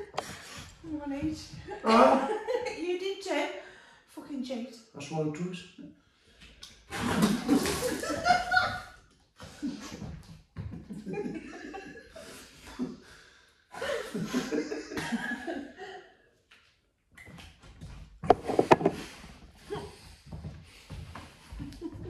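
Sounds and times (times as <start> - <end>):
man and woman laughing: 1.8 - 2.6, 7.2 - 8.8, 10.9 - 12.9, 13.8 - 16.0.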